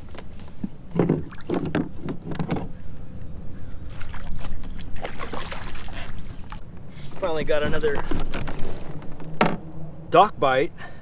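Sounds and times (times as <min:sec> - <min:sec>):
water sloshing and splashing: 0:00.5 - 0:02.9, 0:03.7 - 0:09.6.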